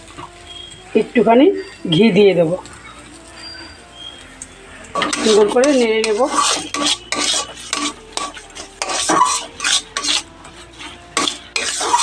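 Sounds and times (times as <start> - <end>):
metal spatula scraping metal pan: 4.8 - 12.0.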